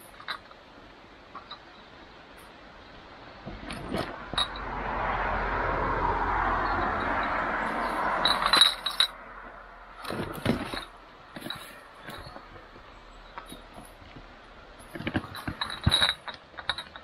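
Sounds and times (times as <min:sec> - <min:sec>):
load rattling and clinking: 0:00.0 - 0:00.7, 0:01.3 - 0:01.8, 0:03.4 - 0:04.7, 0:06.5 - 0:09.2, 0:09.9 - 0:17.0
trolley wheels rolling over stones: 0:03.3 - 0:17.0.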